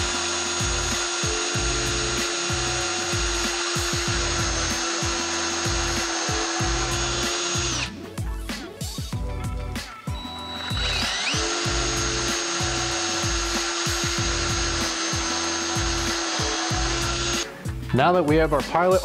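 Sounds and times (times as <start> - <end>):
drill bit cutting wood: 0.0 - 8.0, 9.8 - 17.5
cordless drill motor whine: 0.0 - 8.3, 9.8 - 17.5.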